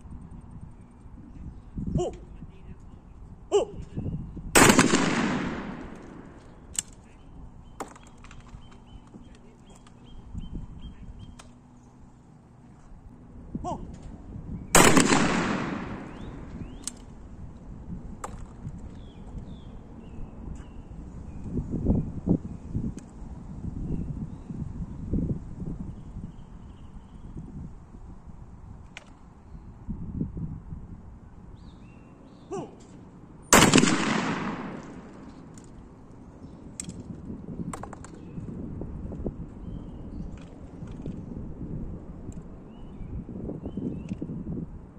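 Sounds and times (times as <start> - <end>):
shotgun shot with echo: 4.6 - 6.4, 14.8 - 16.8, 33.5 - 35.3
sharp clicks: 4.6 - 7.1, 11.2 - 11.6, 14.8 - 17.2.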